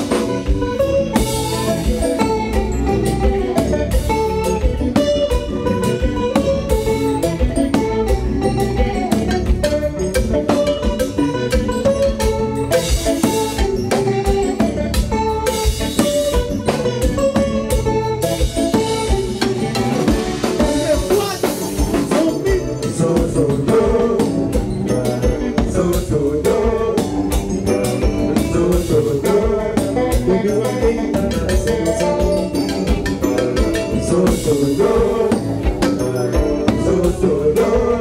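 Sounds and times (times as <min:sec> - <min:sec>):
drum kit dance beat: 0:00.0 - 0:38.0
electric guitar: 0:00.0 - 0:38.0
people singing: 0:08.4 - 0:10.2, 0:20.4 - 0:38.0.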